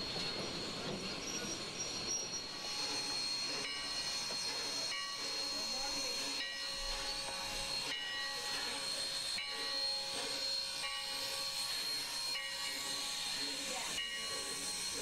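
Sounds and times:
faint steady tones: 0.0s - 15.0s
steam hissing: 0.0s - 15.0s.

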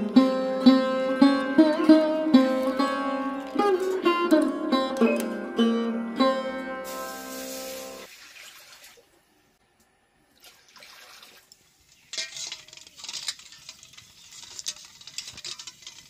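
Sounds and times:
water sloshing in a steel bowl: 8.0s - 9.1s, 10.4s - 16.0s.

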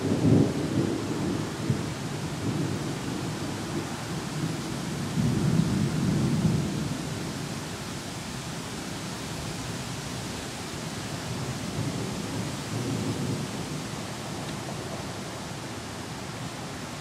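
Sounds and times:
rolling thunder: 0.0s - 7.5s, 11.3s - 15.2s
rain hissing: 0.0s - 17.0s.

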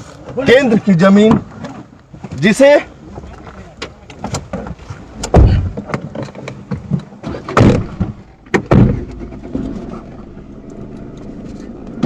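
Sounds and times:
heavy low thumps and knocks: 7.6s - 10.6s
steady low rumble: 7.8s - 12.0s.

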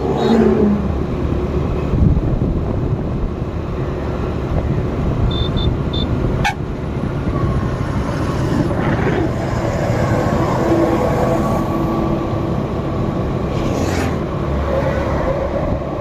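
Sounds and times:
vehicle road and engine rumble: 0.0s - 16.0s
short high-pitched beeps: 5.3s - 6.1s.

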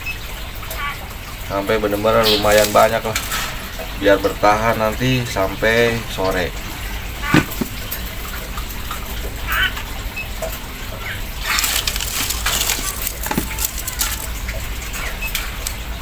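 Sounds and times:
steady background noise: 0.0s - 16.0s
handling clicks and rustles: 6.6s - 8.1s, 11.4s - 16.0s.

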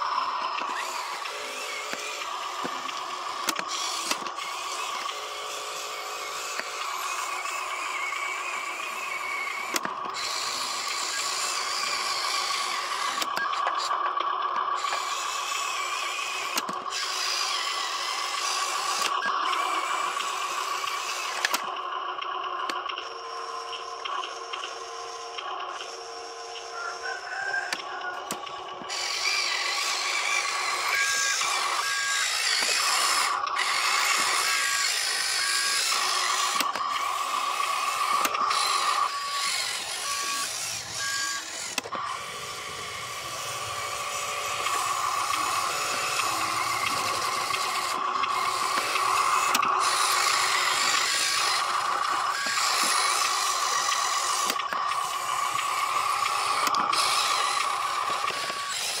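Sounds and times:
toy truck motor whining: 0.0s - 59.0s.

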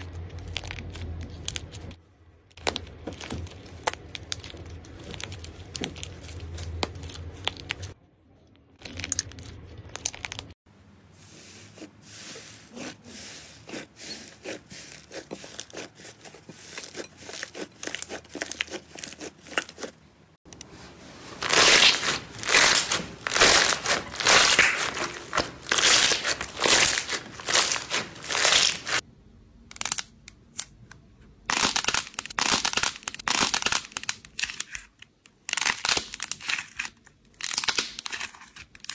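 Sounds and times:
clay crust crunching: 0.0s - 8.0s, 11.6s - 20.6s, 21.3s - 29.0s.

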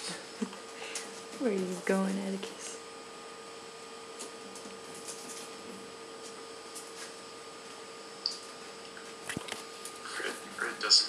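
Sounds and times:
steady hum with whine: 0.0s - 11.0s
faint ticks and scratches: 4.2s - 10.5s.

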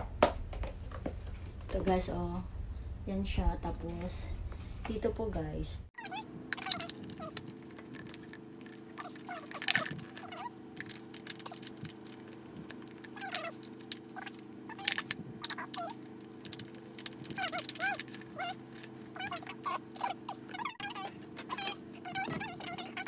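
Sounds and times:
steady low hum: 0.0s - 23.0s
short squeaks: 6.0s - 23.0s
plastic parts clicking and knocking: 6.5s - 19.0s.

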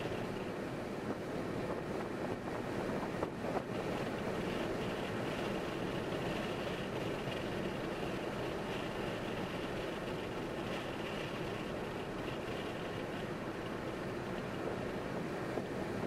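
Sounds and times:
car tyre and wind noise: 0.0s - 16.0s.

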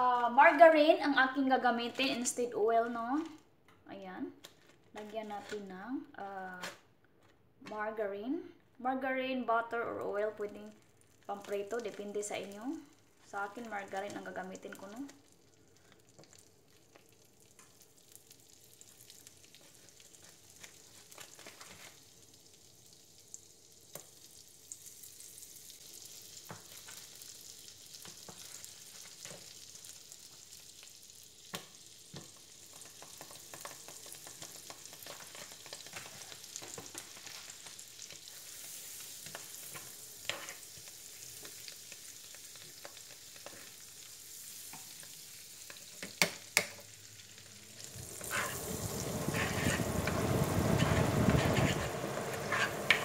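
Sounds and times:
margarine sizzling in a frying pan: 0.0s - 3.4s, 9.4s - 53.0s
utensils tapping a pan: 49.2s - 53.0s.

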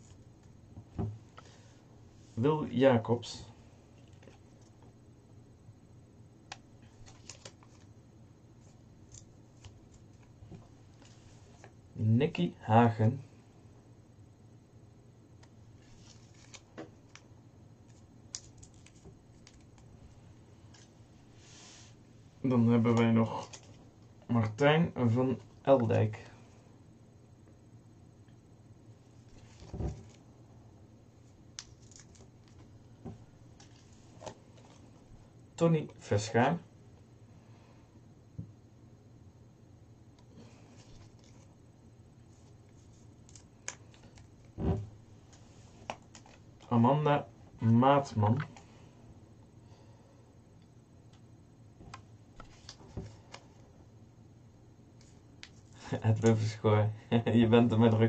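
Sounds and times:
paper crinkling: 6.9s - 7.9s, 15.8s - 17.2s, 17.8s - 21.0s, 31.5s - 32.7s
dull thump on desk: 44.6s - 44.9s.

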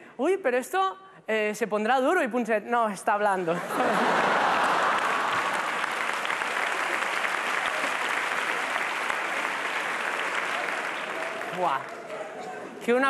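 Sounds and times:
audience applauding: 3.8s - 12.8s.

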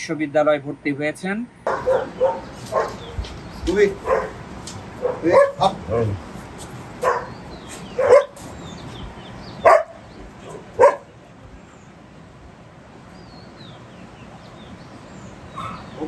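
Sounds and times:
dog barking: 1.7s - 3.2s, 4.0s - 4.4s, 5.0s - 6.2s, 7.0s - 8.4s, 9.6s - 11.1s, 15.5s - 16.0s.

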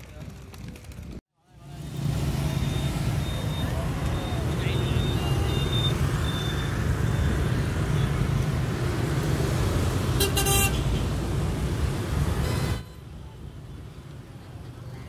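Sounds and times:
rumble of traffic engines: 0.0s - 15.0s
vehicle horn honk: 10.2s - 11.0s.

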